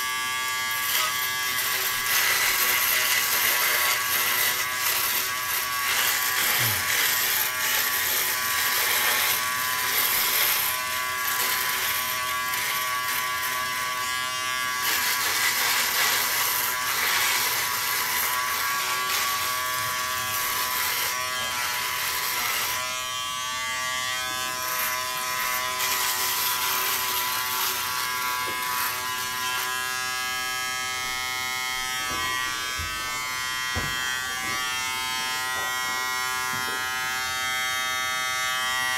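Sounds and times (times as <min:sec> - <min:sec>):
shaver motor buzz: 0:00.0 - 0:38.9
stubble being cut: 0:00.7 - 0:14.0.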